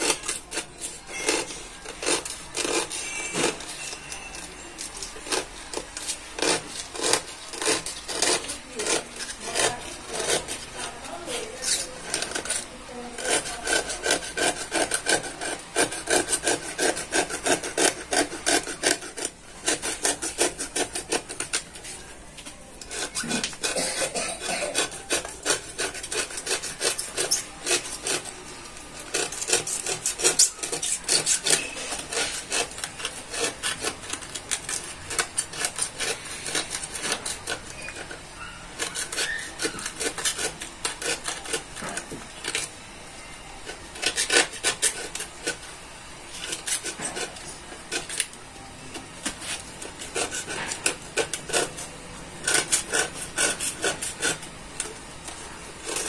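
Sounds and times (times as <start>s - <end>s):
knife rasping sandpaper edge: 0.0s - 22.1s, 22.8s - 28.4s, 29.0s - 42.7s, 43.6s - 45.7s, 46.3s - 48.4s, 49.0s - 56.0s.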